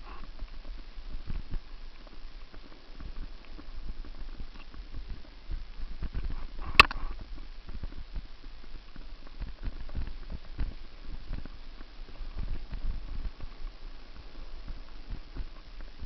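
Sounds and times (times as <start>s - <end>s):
camera knocking and rattling: 6.0s - 7.2s.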